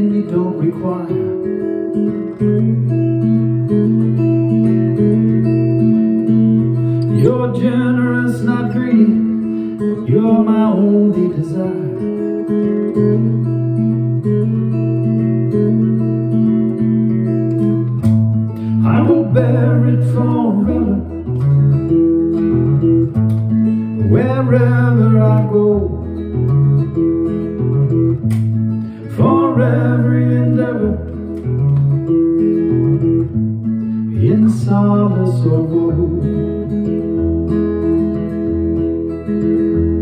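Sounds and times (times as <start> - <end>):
man singing: 0.0 - 1.5, 7.1 - 12.2, 18.8 - 21.3, 24.0 - 26.2, 29.0 - 31.3, 34.1 - 36.7
acoustic guitar chords: 0.0 - 40.0.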